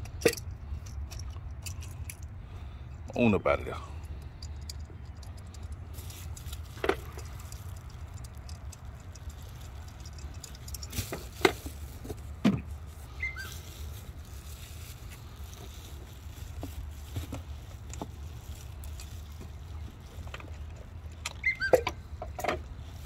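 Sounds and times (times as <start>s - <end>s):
tools clicking and knocking: 0.0s - 2.4s, 4.0s - 12.6s.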